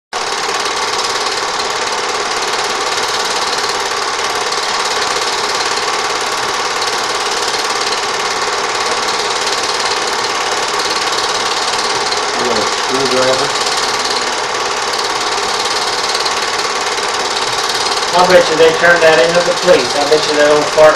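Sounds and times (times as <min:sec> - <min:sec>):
film projector clattering: 0:00.2 - 0:20.9.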